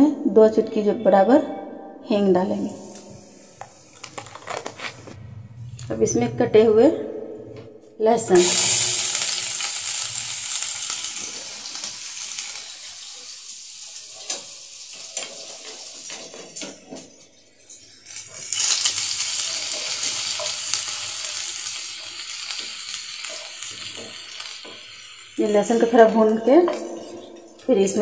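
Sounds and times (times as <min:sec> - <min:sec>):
garlic sizzling in oil: 0:08.3 - 0:16.7, 0:17.9 - 0:26.8.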